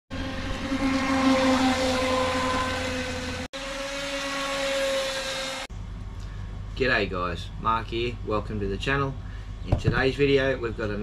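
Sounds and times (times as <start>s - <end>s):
electric motor whining: 0.1s - 5.7s.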